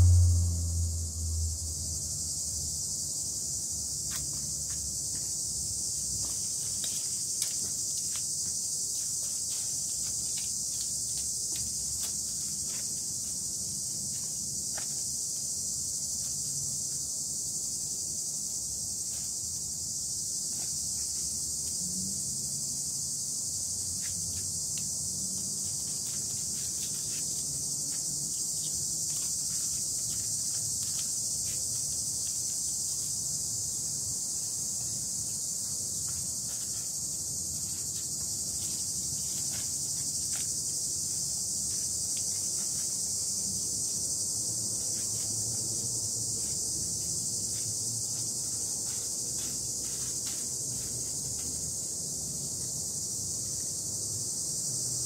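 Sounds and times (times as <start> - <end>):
high-pitched insect chorus: 0.0 - 55.0
faint ticks and rustles: 4.0 - 15.4, 23.9 - 33.2, 34.7 - 43.5.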